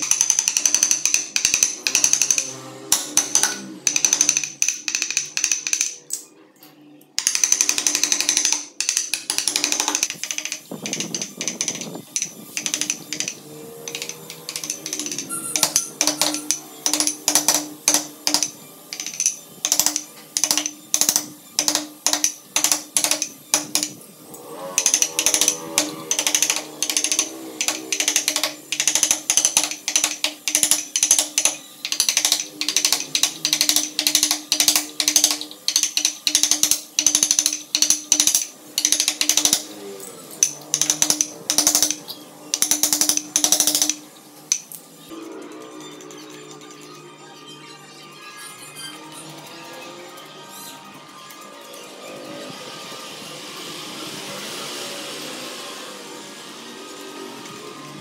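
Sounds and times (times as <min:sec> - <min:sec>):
mallet striking a chisel: 0:13.9 - 0:24.0.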